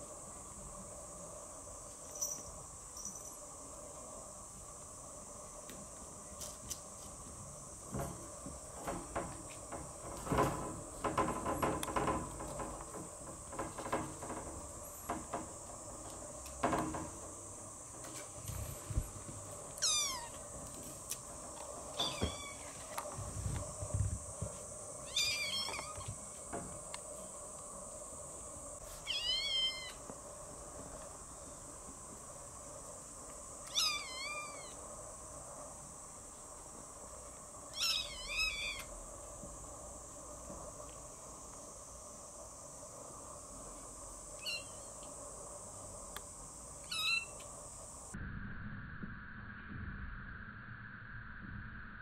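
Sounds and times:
wire mesh rattling: 7.8s - 24.4s
kitten mewing: 19.8s - 20.4s.

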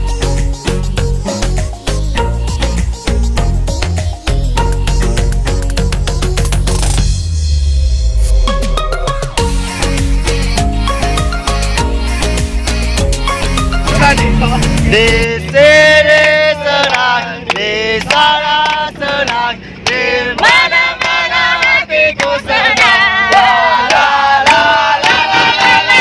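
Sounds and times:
music with heavy bass beat: 0.0s - 15.9s
group singing loudly: 13.3s - 26.0s.

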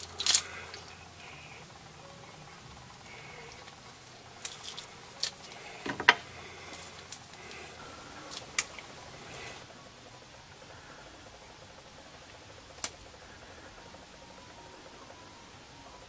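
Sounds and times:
jalebi crunching: 0.0s - 1.0s, 4.4s - 5.8s, 6.4s - 9.6s.

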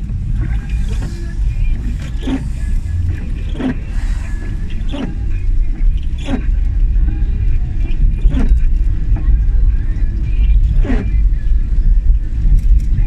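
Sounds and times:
car road noise rumble: 0.0s - 13.0s
windscreen wipers swishing: 0.0s - 13.0s.

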